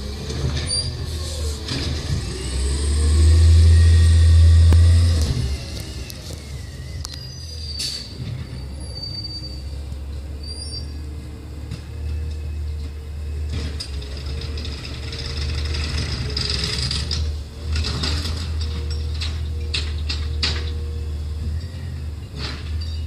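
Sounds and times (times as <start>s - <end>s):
hydraulic arm whine: 0.0s - 9.8s.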